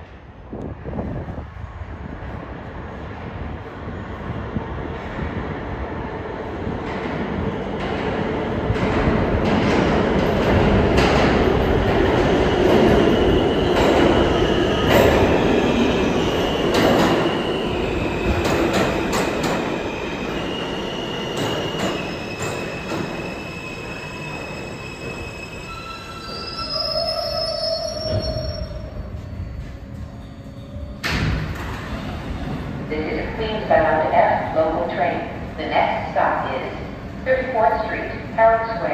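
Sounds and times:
subway train rumble: 0:00.0 - 0:38.9
wheels and brakes squealing: 0:21.8 - 0:31.0.

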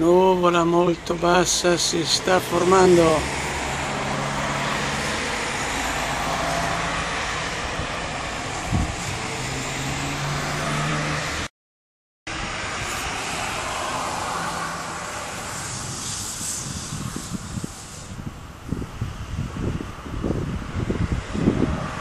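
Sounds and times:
road traffic: 0:00.0 - 0:11.5, 0:12.3 - 0:22.0.

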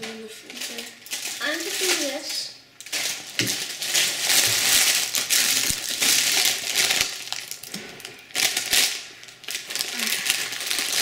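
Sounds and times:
plastic wrappers crinkling: 0:00.0 - 0:11.0.

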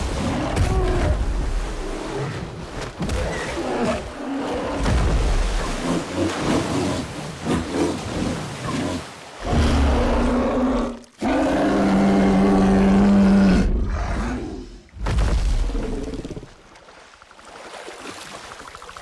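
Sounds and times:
water splashing: 0:00.0 - 0:11.1, 0:15.0 - 0:19.0.

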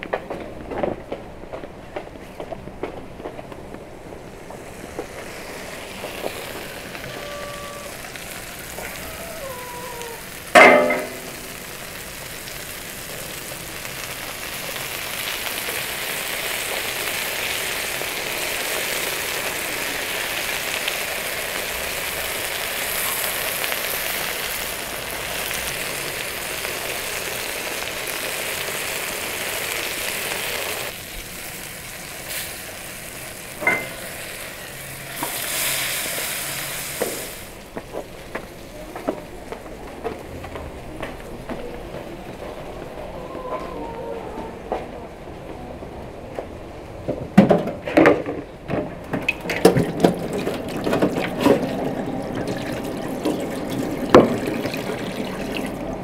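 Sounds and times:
food sizzling on hot stone: 0:04.1 - 0:38.7.

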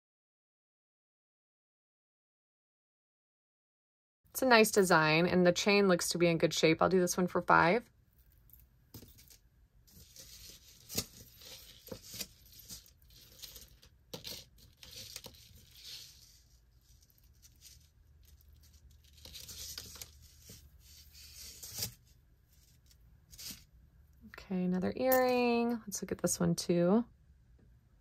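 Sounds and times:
necklace rustling on cloth: 0:08.2 - 0:23.7.

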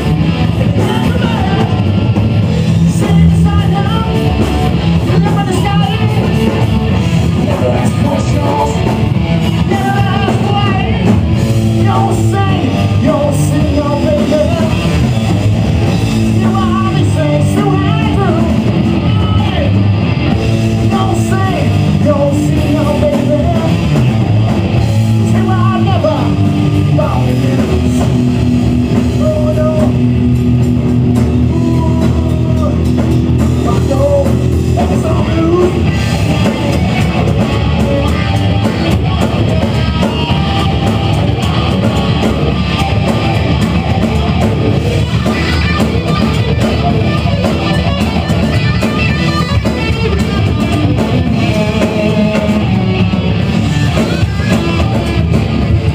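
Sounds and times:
drum kit: 0:00.0 - 0:55.9
electric guitars: 0:00.0 - 0:55.9
person singing: 0:00.5 - 0:02.2, 0:02.8 - 0:15.1, 0:31.3 - 0:55.6.

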